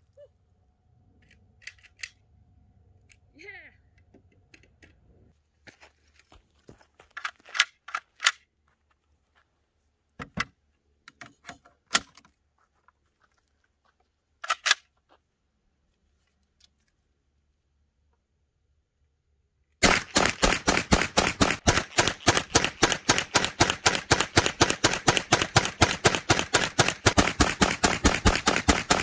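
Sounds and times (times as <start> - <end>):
pistol metallic clicks and clacks: 1.2 - 2.3, 7.2 - 8.5, 14.4 - 14.9, 19.8 - 29.0.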